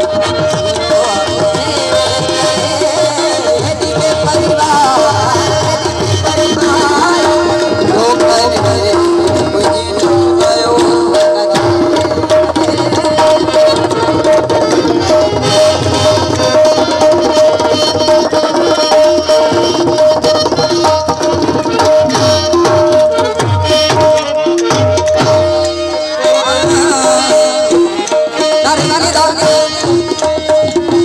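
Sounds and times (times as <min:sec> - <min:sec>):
harmonium sustained notes: 0:00.0 - 0:31.0
tabla playing brisk rhythm: 0:00.0 - 0:31.0.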